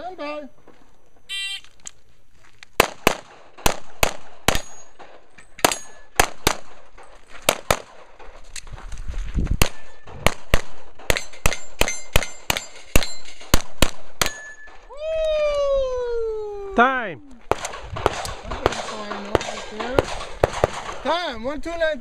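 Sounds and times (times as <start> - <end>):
rapid pistol shots: 2.8 - 8.4, 9.6 - 14.6, 17.5 - 21.2
bullets ringing on steel targets: 4.5 - 6.2, 11.1 - 13.5, 14.2 - 14.8.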